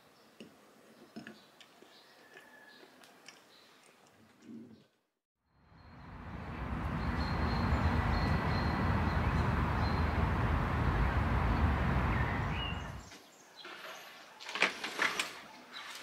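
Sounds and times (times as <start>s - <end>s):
faint high bird chirp: 5.6s - 13.7s
heavy low rumble: 5.7s - 13.1s
steady rush of noise: 5.8s - 13.1s.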